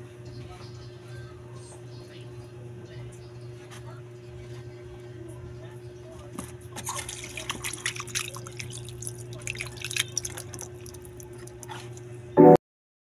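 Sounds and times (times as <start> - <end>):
water dripping and splashing: 6.8 - 11.7.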